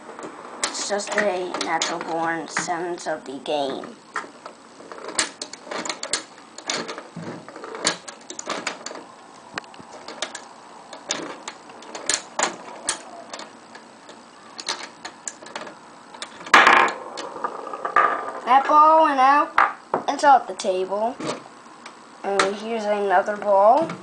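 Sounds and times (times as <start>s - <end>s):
ball knocking about: 15.6s - 18.8s, 19.6s - 20.1s.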